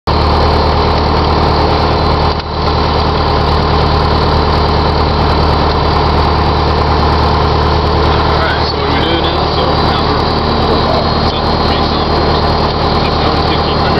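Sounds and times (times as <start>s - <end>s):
light aircraft engine at high power: 0.1s - 13.9s.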